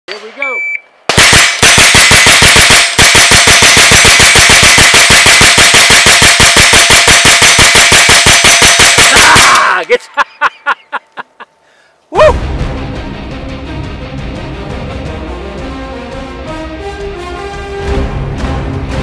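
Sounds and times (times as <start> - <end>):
rapid gunfire: 1.1 - 9.6.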